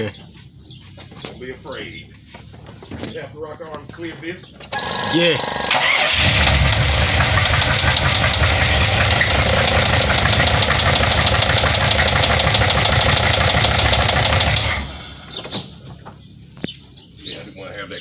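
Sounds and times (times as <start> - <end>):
engine running with knock: 3.7 - 17.0.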